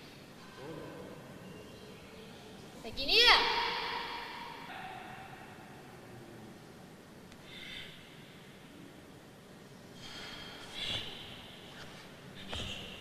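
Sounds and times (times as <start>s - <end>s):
short forceful breaths: 9.9s - 13.0s.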